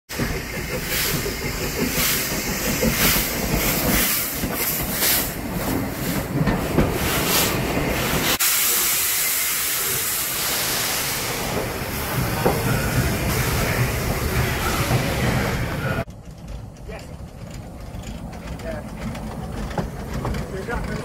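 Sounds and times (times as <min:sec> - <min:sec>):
steam locomotive hissing: 0:00.1 - 0:16.1.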